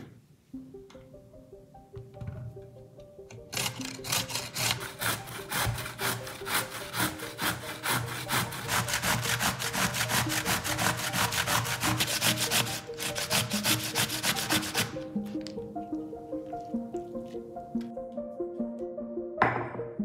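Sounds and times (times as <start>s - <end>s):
grating on a metal grater: 3.6s - 15.0s.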